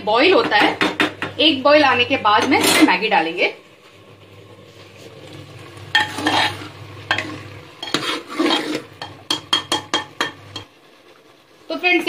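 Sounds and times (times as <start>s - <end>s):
spoon scraping steel pot: 5.9s - 10.7s.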